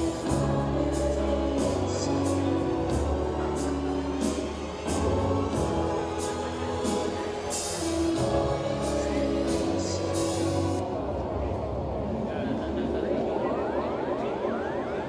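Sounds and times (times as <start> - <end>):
music with singing voices: 0.0 - 11.9.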